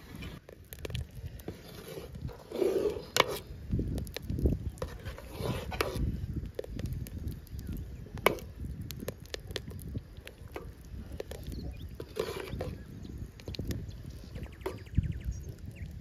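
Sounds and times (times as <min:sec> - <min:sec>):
ladle clinking and scraping pot: 0:01.5 - 0:03.5, 0:04.8 - 0:06.1, 0:12.0 - 0:12.8.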